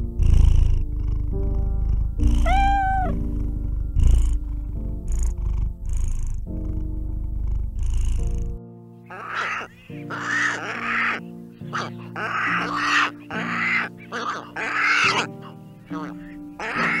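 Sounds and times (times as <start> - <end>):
kitten purring: 0.0 - 10.8
soft background music: 0.0 - 17.0
kitten meow: 2.2 - 3.2.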